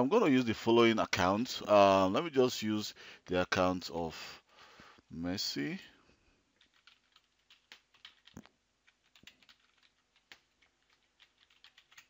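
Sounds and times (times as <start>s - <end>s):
faint keyboard typing: 6.5s - 12.0s.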